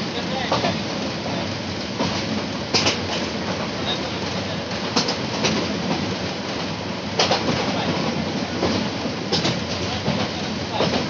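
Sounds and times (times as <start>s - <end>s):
train wheels rumbling on rails: 0.0s - 11.0s
wheels clicking over rail joints: 2.0s - 3.4s.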